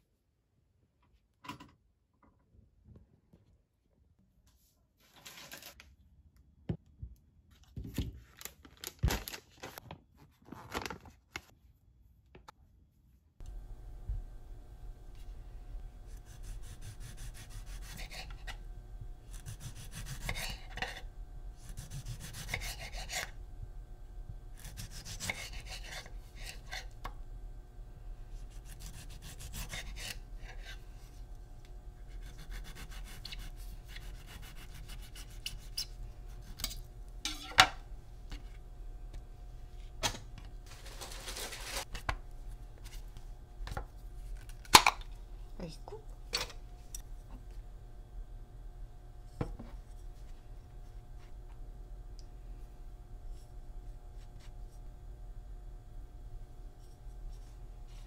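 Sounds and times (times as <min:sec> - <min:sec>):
knife sawing through tomato: 0:16.1 - 0:18.6, 0:19.3 - 0:21.0, 0:21.6 - 0:23.4, 0:24.6 - 0:26.9, 0:28.4 - 0:30.8, 0:32.1 - 0:36.7.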